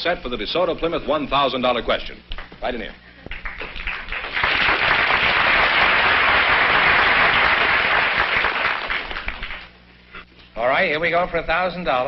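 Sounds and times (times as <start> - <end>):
audience applauding: 3.3 - 9.8.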